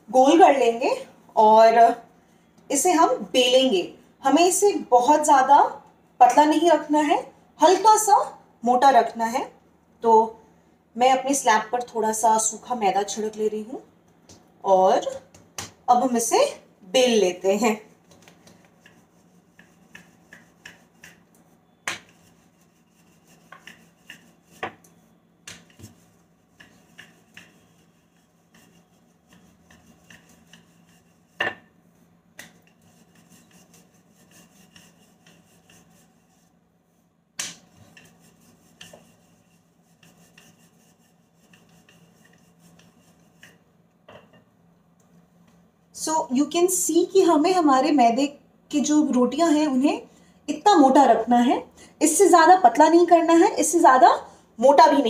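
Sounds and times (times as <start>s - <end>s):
faint steady hum: 0.0s - 55.0s
rolling pin rubbing on dough: 17.5s - 43.7s.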